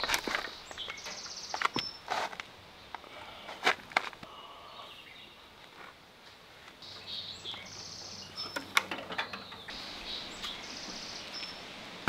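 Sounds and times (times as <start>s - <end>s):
birds chirping: 0.0s - 6.0s, 6.6s - 12.0s.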